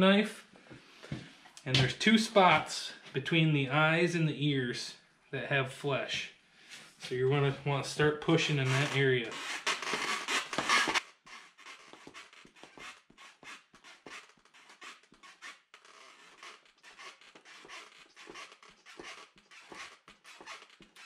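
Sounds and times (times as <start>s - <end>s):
knife scraping hide: 8.5s - 21.0s.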